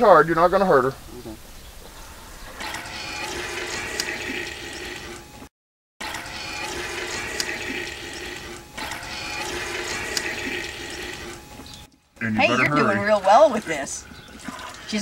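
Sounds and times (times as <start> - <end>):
milk squirting into plastic bucket: 6.0 - 11.7, 13.6 - 15.0.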